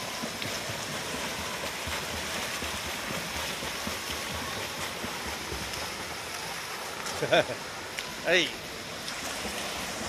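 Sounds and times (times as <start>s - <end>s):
water splashing from swimmers: 0.0s - 10.0s.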